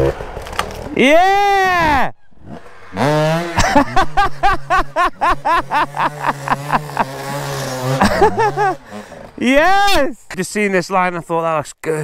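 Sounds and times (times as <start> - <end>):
dirt bike engine idling: 2.5 - 9.5
person laughing: 3.2 - 9.0.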